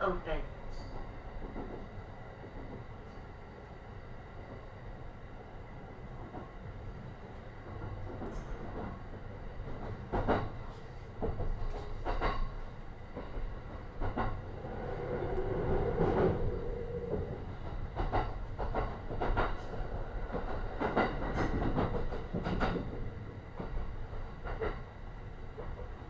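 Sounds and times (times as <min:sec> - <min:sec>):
train running rumble: 0:05.8 - 0:26.0.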